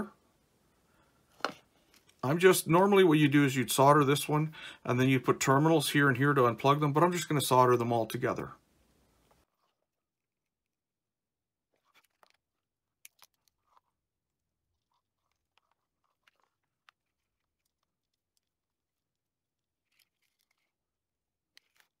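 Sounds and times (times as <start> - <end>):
wires clicking and crinkling: 1.3 - 2.5, 11.7 - 22.0.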